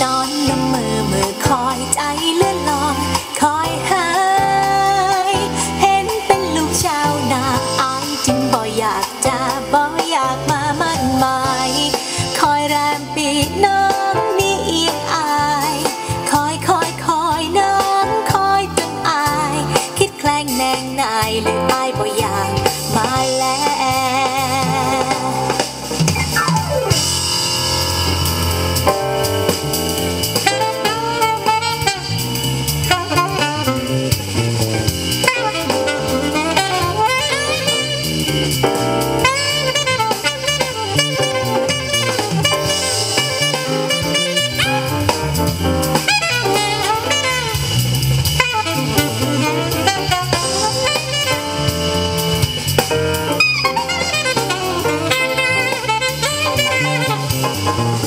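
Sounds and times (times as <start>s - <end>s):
bass: 0.0s - 58.0s
drum kit: 0.0s - 58.0s
song over pa loudspeakers: 0.0s - 58.0s
melodic lead instrument: 24.6s - 58.0s.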